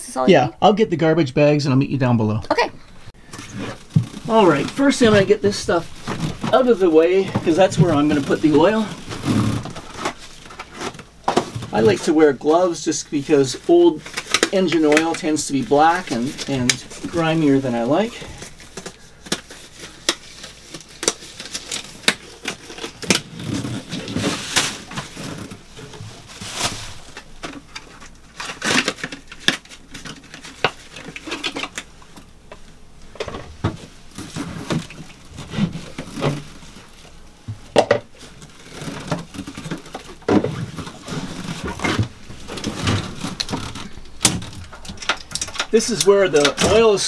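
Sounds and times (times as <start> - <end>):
handling clicks knocks and rustles: 18.3 - 46.9.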